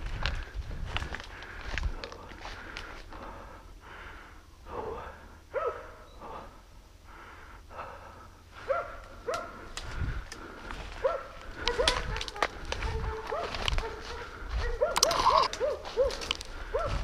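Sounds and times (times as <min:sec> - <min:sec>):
person breathing hard: 0:00.0 - 0:12.9, 0:13.9 - 0:15.5, 0:16.1 - 0:17.0
dogs barking: 0:05.5 - 0:06.4, 0:08.6 - 0:09.8, 0:10.8 - 0:17.0.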